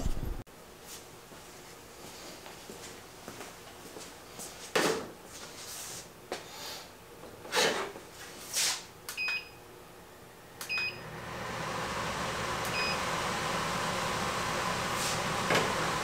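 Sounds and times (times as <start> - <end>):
air filtration unit beeping: 9.1 - 9.7, 10.5 - 11.2, 12.6 - 13.2
fan rush of air: 11.0 - 16.0.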